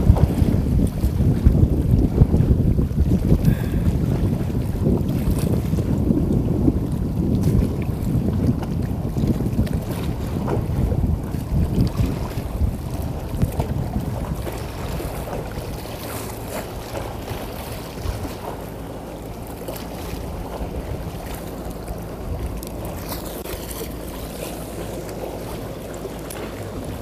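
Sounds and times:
water lapping: 0.0 - 27.0
wind on microphone: 0.0 - 27.0
engine humming: 15.0 - 27.0.

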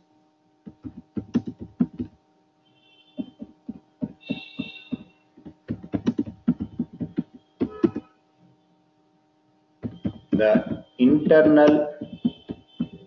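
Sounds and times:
steady low hum: 0.0 - 13.0
keyboard key clacks: 0.7 - 2.1, 3.2 - 8.1.

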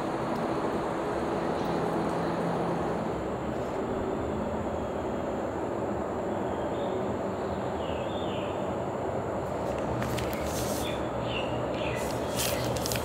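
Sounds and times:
low outdoor rumble: 0.0 - 13.0
plastic wrap crinkling: 12.0 - 13.0.

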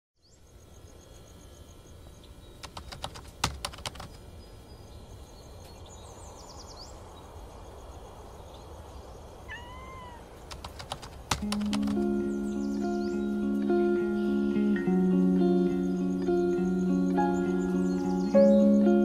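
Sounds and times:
insects chirping: 0.2 - 19.0
sharp clicks: 2.6 - 4.2, 10.4 - 12.2
animal call: 9.5 - 10.7.

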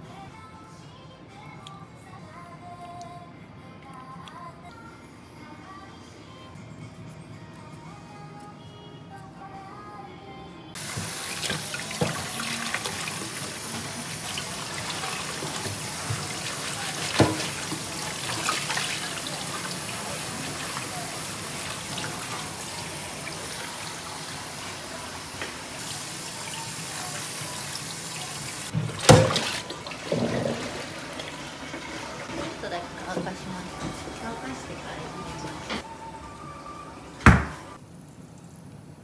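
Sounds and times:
tap running into steel bowl: 14.8 - 18.4.

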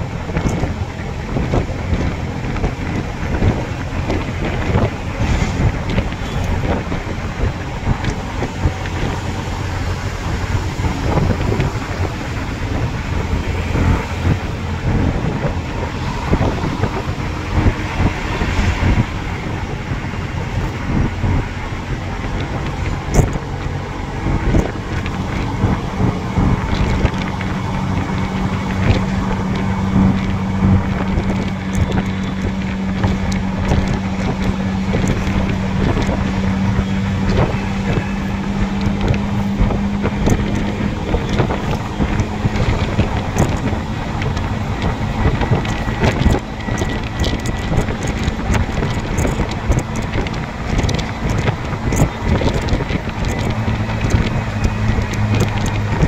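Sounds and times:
engine hum: 0.0 - 56.0
road and wind noise: 0.0 - 56.0
wind buffeting microphone: 0.0 - 56.0.

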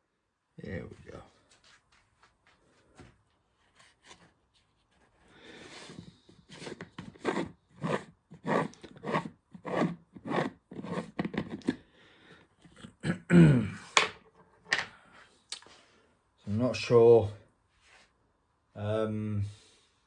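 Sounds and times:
screw lid scraping on glass jar: 6.6 - 11.8.

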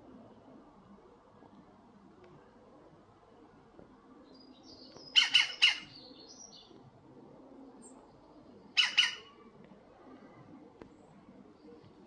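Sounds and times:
woodpecker squawky calls: 5.1 - 6.0, 8.8 - 9.4.

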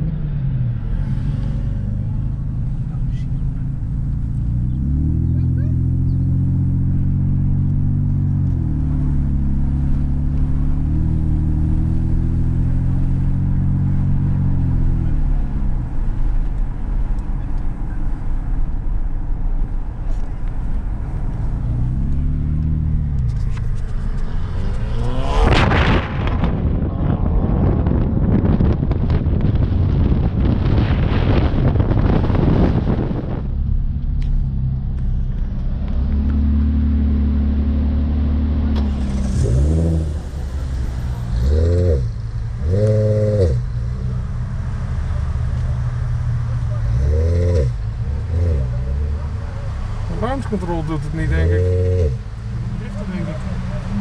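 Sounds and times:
car engine accelerating hard: 0.0 - 54.0
wind rushing on microphone: 23.2 - 34.5.

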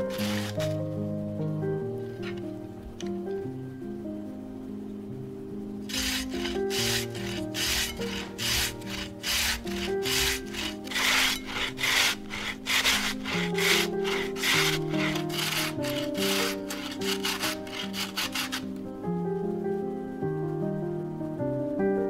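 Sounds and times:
potato scraped on metal grater: 0.0 - 0.8, 5.9 - 18.8.

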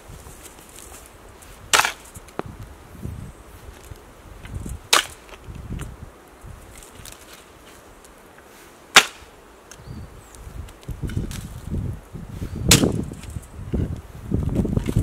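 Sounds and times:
earth scraping and rustling: 0.0 - 15.0
sharp cracks: 1.7 - 2.1, 4.9 - 5.4, 8.9 - 9.3, 12.7 - 13.2.

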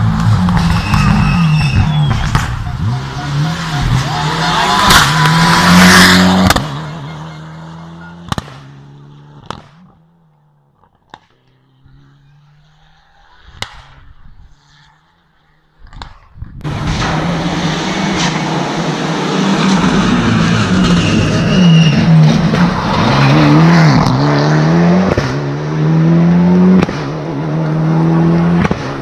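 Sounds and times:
rally car revving past: 0.0 - 9.6, 16.7 - 29.0
exhaust pops: 0.2 - 3.0.

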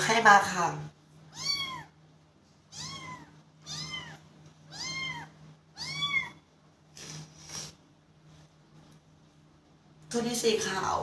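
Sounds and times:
kitten meowing: 1.3 - 2.0, 2.7 - 6.4.

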